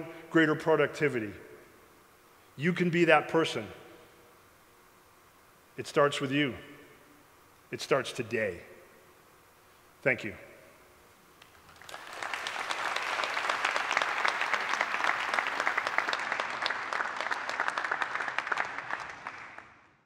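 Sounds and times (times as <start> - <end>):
large audience applauding: 11.4 - 20.0.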